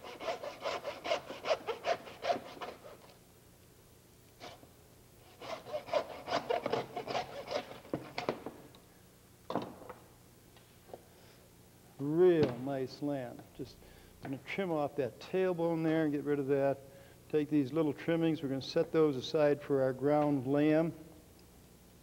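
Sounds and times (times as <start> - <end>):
band saw cutting meat and bone: 0.0 - 3.0, 5.4 - 8.2.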